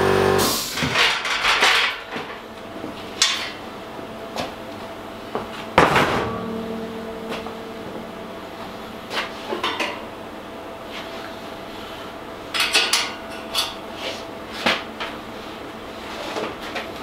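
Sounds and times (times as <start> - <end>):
faint steady hum: 1.6 - 17.0
metal knocks on steel frame: 5.8 - 8.4.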